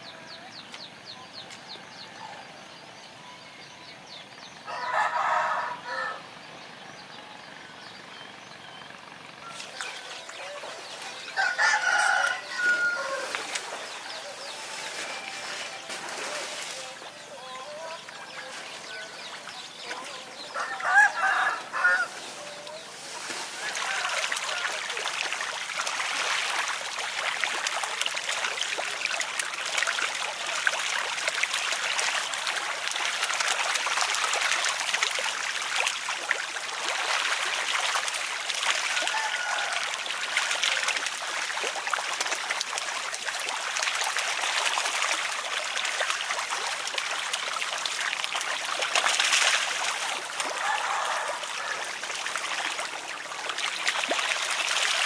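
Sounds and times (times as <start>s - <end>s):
fish splashing in shallow water: 8.4s - 55.0s.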